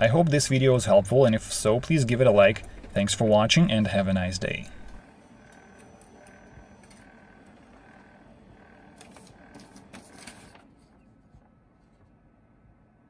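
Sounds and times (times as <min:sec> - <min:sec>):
laser printer running: 0:00.0 - 0:12.6
repeating printer tone: 0:00.5 - 0:10.6.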